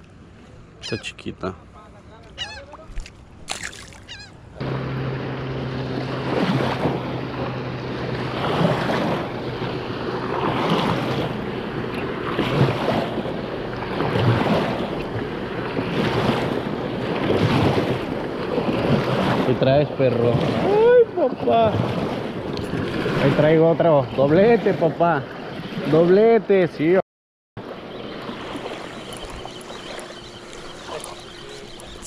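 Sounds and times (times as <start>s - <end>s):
small waves washing onto sand: 2.3s - 26.6s, 27.6s - 32.0s.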